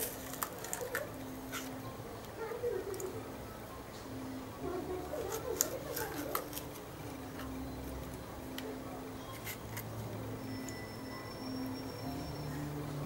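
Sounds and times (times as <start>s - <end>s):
faint background voices: 0.0s - 10.4s.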